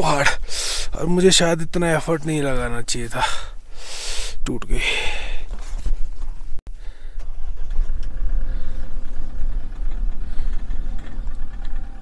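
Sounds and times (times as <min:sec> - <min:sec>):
car engine starting and rumbling: 0:06.7 - 0:12.0.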